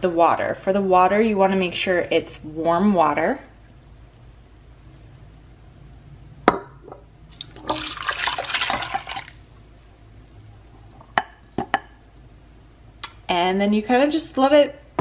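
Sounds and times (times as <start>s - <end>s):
water pouring into steel bowl: 7.3s - 9.6s.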